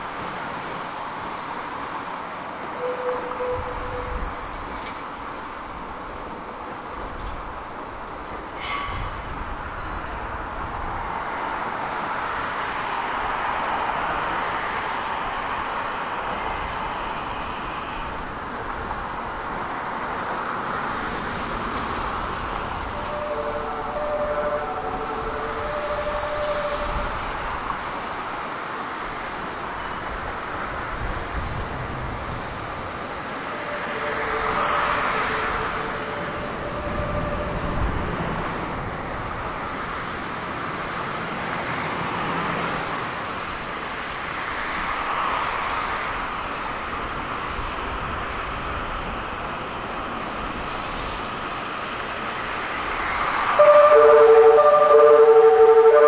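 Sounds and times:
train wheels rumbling on rails: 0.0s - 56.0s
wheel squeal: 2.8s - 5.0s, 25.8s - 27.1s, 33.7s - 37.4s.

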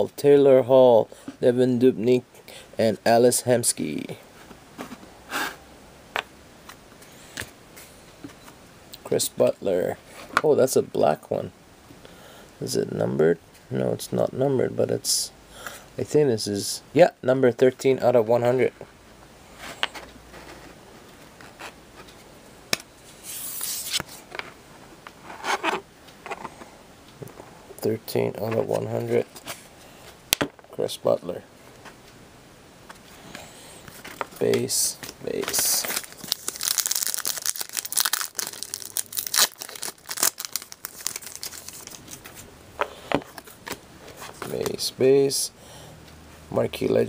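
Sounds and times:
trading cards sliding and rubbing: 23.0s - 24.3s, 25.2s - 26.7s
card rustling as turned over: 23.2s - 24.3s, 33.9s - 42.5s.

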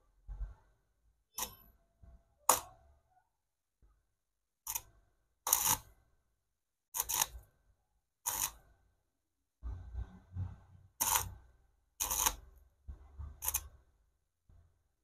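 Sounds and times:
arc welder crackling: 8.3s - 8.6s, 11.0s - 11.3s.

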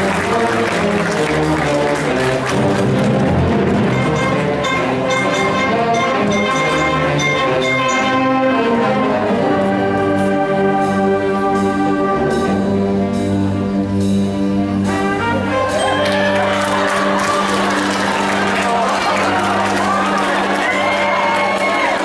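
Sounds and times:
concert band playing chords: 0.0s - 22.0s.

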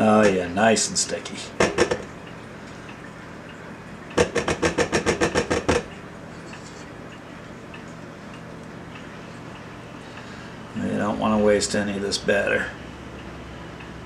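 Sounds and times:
spatula knocking on metal bowl: 4.2s - 5.9s.

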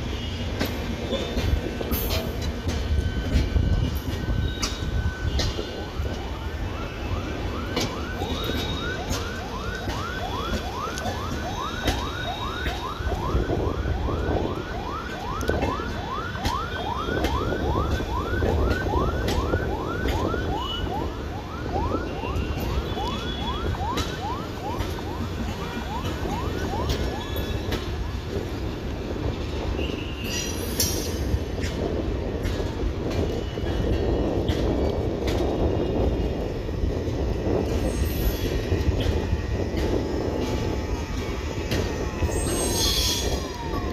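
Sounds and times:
train coaches rumbling past: 0.0s - 43.9s
high falling squeal: 42.2s - 43.8s.

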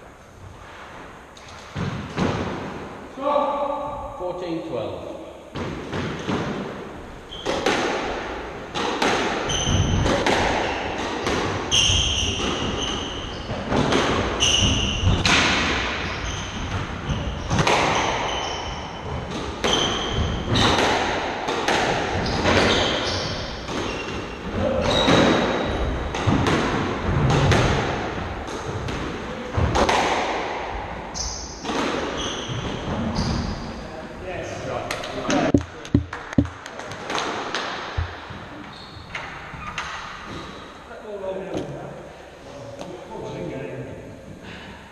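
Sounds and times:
squash ball hits: 5.5s - 30.9s, 34.9s - 38.4s
shoes squeaking on wooden floor: 7.3s - 7.7s, 9.4s - 15.3s, 16.0s - 20.8s, 22.2s - 25.9s, 35.2s - 36.6s, 38.0s - 40.5s.

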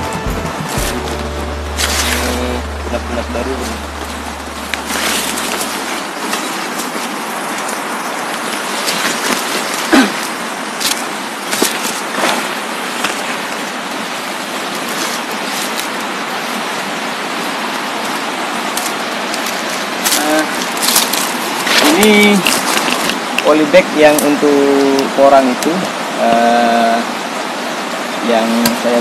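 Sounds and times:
leaves brushing: 0.0s - 27.1s
steady rushing noise: 0.0s - 29.0s
footsteps on path: 3.7s - 10.0s.

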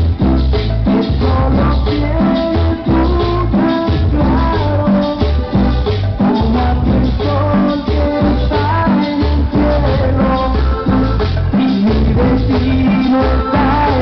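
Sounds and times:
loud dance music: 0.0s - 14.0s
rattling hand percussion: 0.0s - 14.0s
repeating bass line: 0.0s - 14.0s.

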